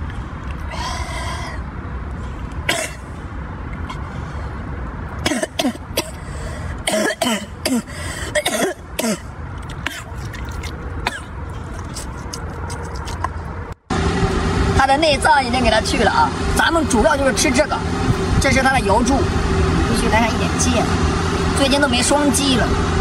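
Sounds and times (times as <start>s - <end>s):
man coughing: 6.8s - 9.3s
low rumble: 9.5s - 23.0s.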